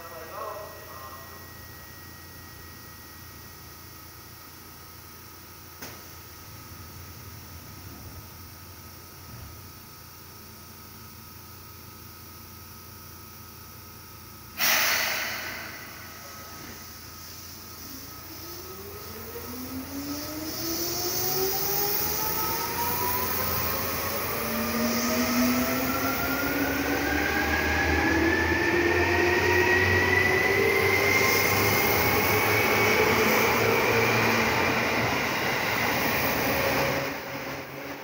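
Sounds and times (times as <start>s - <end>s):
electric train motors whining: 15.6s - 38.0s.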